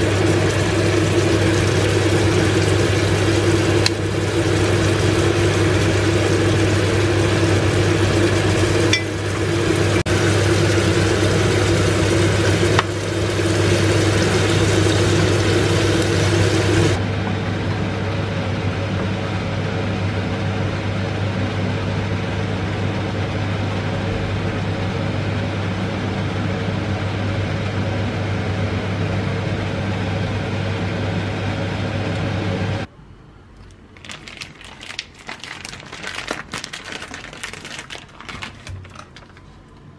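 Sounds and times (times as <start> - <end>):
prawns sizzling in a frying pan: 0.0 - 17.0.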